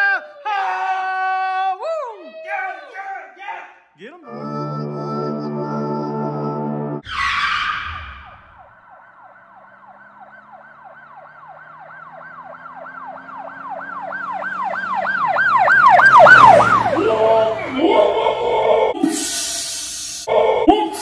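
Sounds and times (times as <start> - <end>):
music: 4.2 - 7.0
yelp emergency siren wailing: 4.2 - 21.0.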